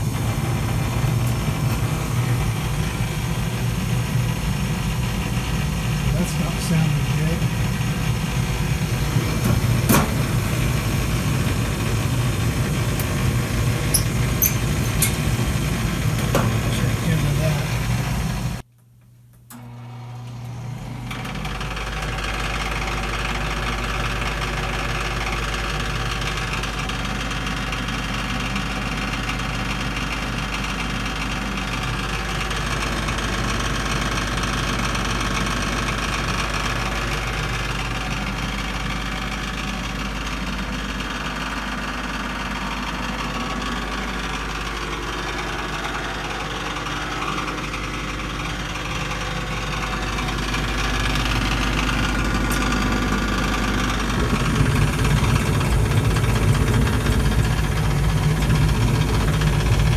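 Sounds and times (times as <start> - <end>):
loud low hum: 0.0 - 18.7, 31.0 - 59.9
furnace inducer motor noise: 0.0 - 59.9.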